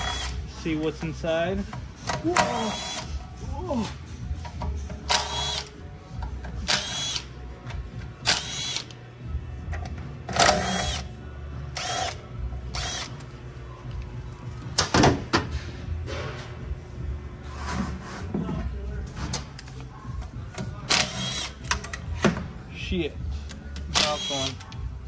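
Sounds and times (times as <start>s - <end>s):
power driver whining: 0.0s - 0.6s, 11.7s - 13.3s.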